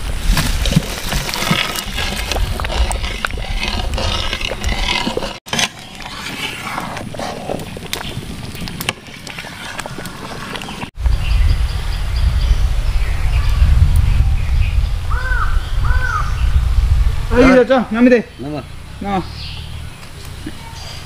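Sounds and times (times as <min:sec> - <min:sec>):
thick curry bubbling: 0:00.2 - 0:11.0
spoon scraping a pan: 0:01.2 - 0:08.1.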